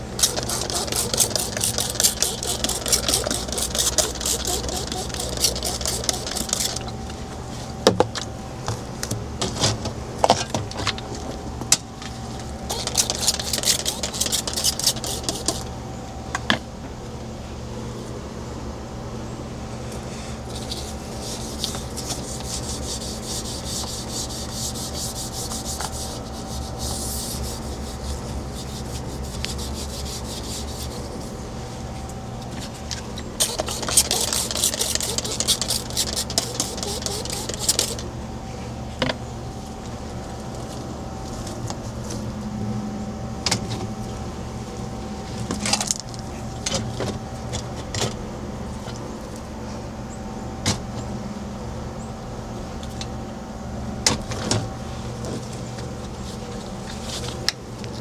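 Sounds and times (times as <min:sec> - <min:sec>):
hand scrubbing a fridge: 0:00.0 - 0:06.9, 0:12.7 - 0:15.7, 0:20.5 - 0:31.8, 0:32.7 - 0:38.0
steady low hum: 0:00.0 - 0:58.0.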